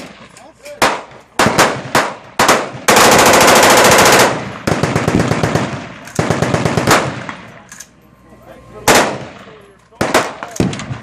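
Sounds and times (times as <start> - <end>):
automatic rifle fire: 0.8 - 7.4, 8.9 - 9.4, 10.0 - 11.0.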